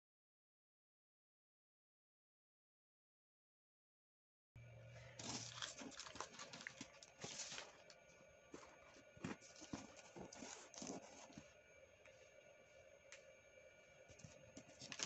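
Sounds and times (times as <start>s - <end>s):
paper rustling as it is folded: 5.2s - 8.0s, 8.6s - 11.5s, 14.1s - 15.0s.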